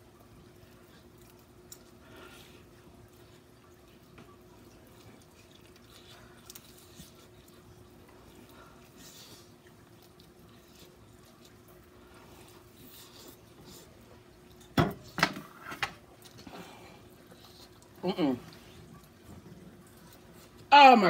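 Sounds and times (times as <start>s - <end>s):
low steady hum: 0.0s - 21.0s
woman chewing: 4.3s - 14.7s.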